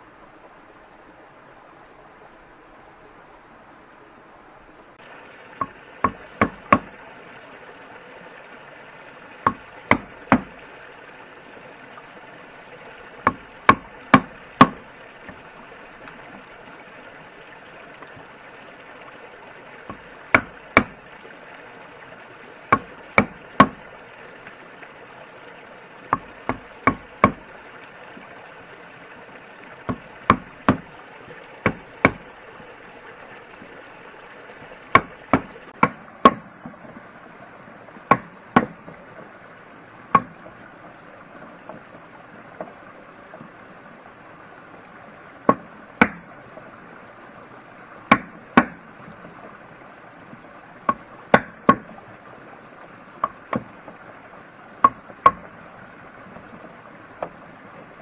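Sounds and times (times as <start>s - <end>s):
wood knocks: 5.6s - 7.0s, 9.4s - 10.6s, 13.2s - 15.4s, 19.9s - 21.0s, 22.7s - 23.8s, 26.1s - 27.5s, 29.9s - 30.9s, 31.6s - 32.3s, 34.9s - 37.0s, 38.1s - 38.9s, 40.1s - 40.5s, 45.5s - 46.2s, 48.1s - 48.8s, 50.9s - 51.9s, 53.2s - 53.7s, 54.8s - 55.5s.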